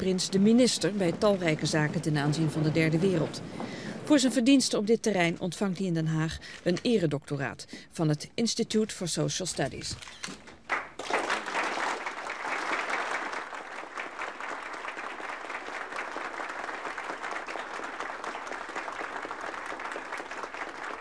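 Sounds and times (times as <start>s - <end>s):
audience applauding: 10.6s - 21.0s.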